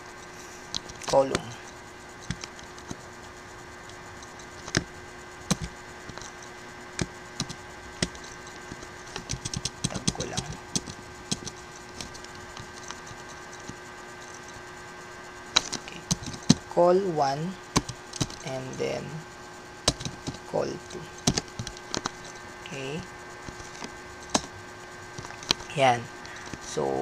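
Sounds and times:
faint steady hum: 0:00.0 - 0:27.0
keyboard keys clicking: 0:05.5 - 0:06.4, 0:07.0 - 0:14.5, 0:15.6 - 0:16.6, 0:17.8 - 0:18.5, 0:19.9 - 0:22.4.

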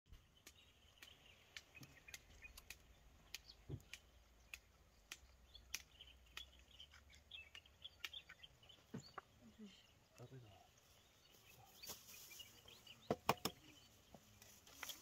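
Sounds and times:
small birds chirping: 0:00.1 - 0:15.0
irregular sharp clicks: 0:00.4 - 0:08.4.

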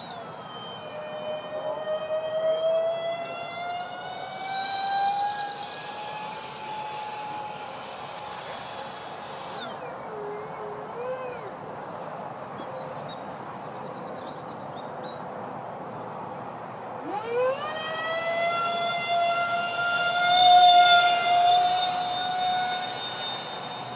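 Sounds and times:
model jet fans whining: 0:00.0 - 0:12.1, 0:17.0 - 0:23.9.

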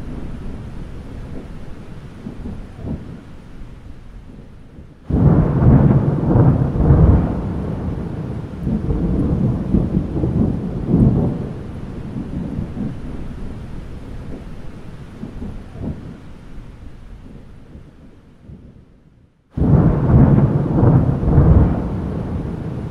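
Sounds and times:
rain falling: 0:00.0 - 0:18.9, 0:19.5 - 0:22.9
thunder rumbling: 0:00.0 - 0:22.9.

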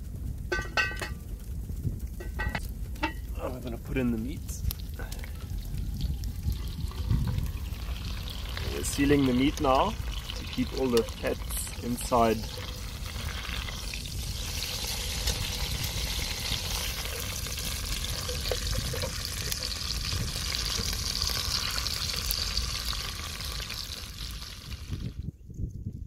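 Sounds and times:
meat sizzling in hot oil: 0:04.7 - 0:25.2.

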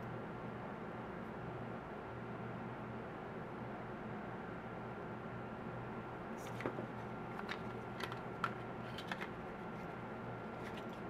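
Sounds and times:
plastic phone cases clicking: 0:07.4 - 0:09.3.

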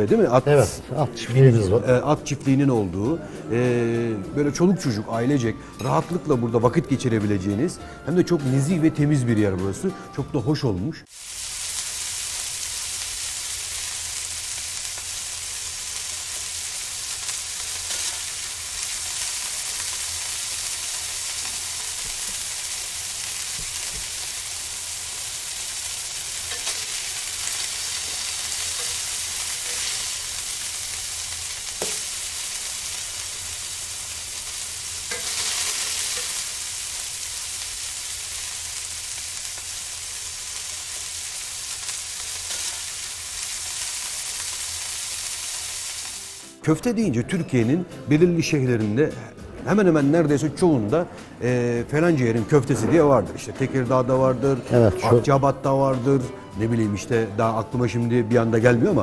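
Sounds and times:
meatballs sizzling: 0:11.0 - 0:46.6.

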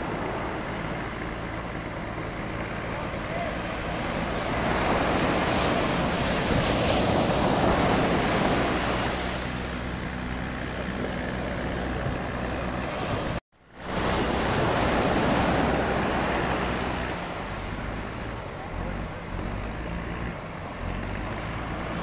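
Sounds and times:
wind buffeting microphone: 0:00.0 - 0:13.4
faint engine hum: 0:00.0 - 0:22.0
surf waves breaking: 0:00.0 - 0:22.0.

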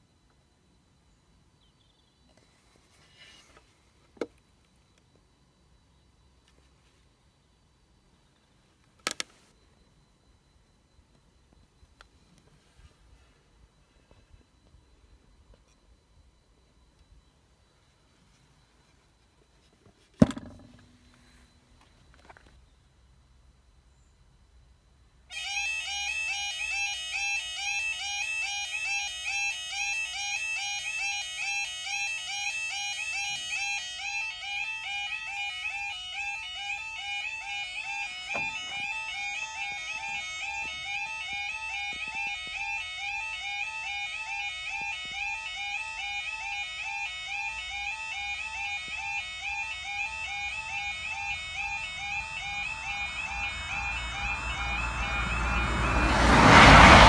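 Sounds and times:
level crossing alarm warbling: 0:25.3 - 0:57.0.

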